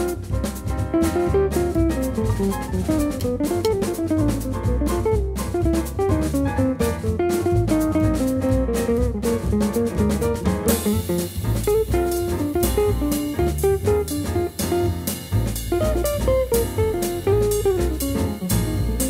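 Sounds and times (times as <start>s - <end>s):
jazzy guitar tune with bass and drums: 0.0s - 19.0s.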